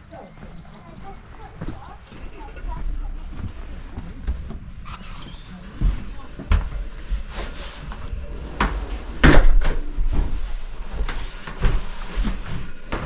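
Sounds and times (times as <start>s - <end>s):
knocks and bangs: 7.9s - 13.0s.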